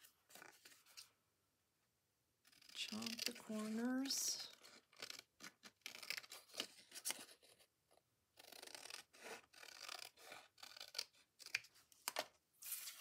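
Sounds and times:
scissors snipping paper: 2.5 - 7.3, 8.4 - 12.2.

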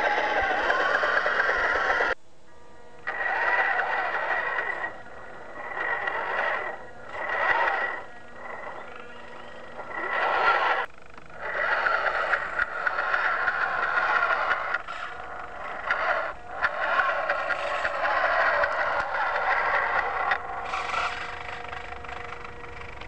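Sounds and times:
small electric motor whining: 0.0 - 23.0.

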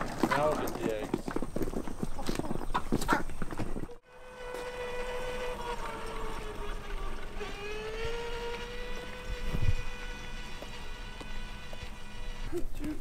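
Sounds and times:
toy quad motor whining: 4.0 - 13.0.

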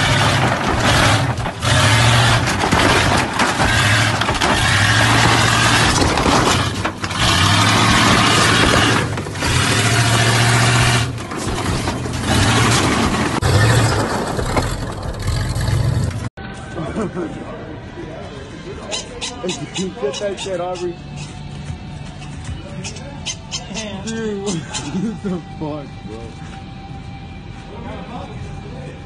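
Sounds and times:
truck engine revving hard: 0.0 - 16.3.

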